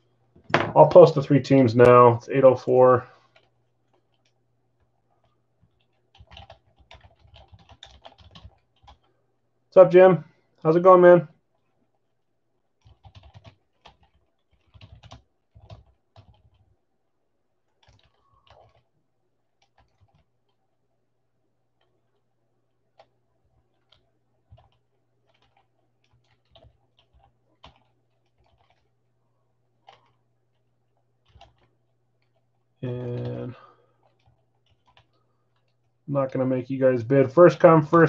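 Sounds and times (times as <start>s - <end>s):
typing on computer keyboard: 3.2s - 4.4s, 5.2s - 9.2s, 12.7s - 16.8s, 17.7s - 18.9s, 19.5s - 20.6s, 22.8s - 29.0s, 29.8s - 36.0s.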